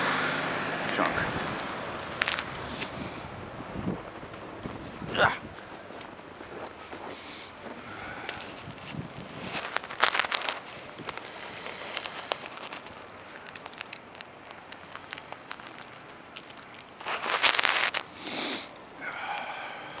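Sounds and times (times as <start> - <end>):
wind gusts rushing: 0.0 - 5.7
blowing snow crackling: 0.0 - 20.0.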